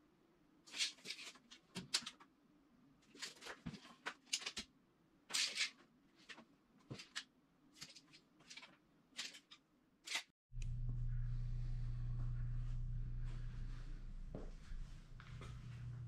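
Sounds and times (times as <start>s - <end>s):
steady low hum: 10.5s - 16.0s.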